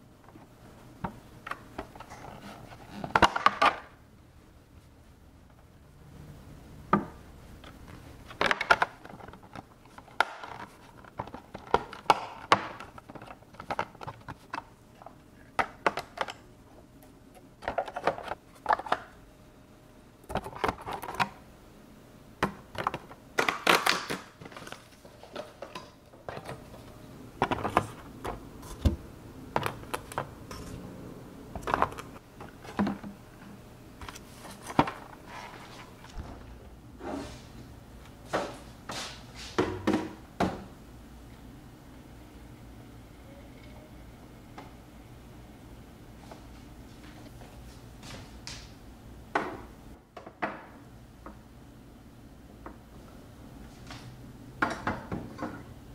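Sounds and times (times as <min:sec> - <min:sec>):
plastic cups knocking and clicking: 0:08.3 - 0:16.4, 0:22.4 - 0:30.8, 0:31.6 - 0:33.2.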